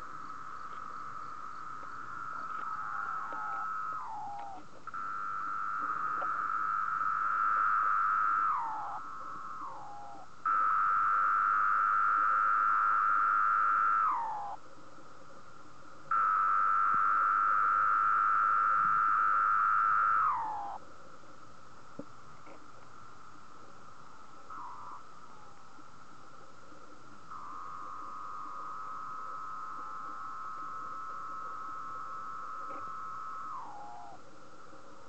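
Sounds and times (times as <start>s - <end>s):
cicada buzzing: 0.0s - 14.6s, 16.1s - 20.8s, 24.4s - 25.6s, 27.2s - 34.2s.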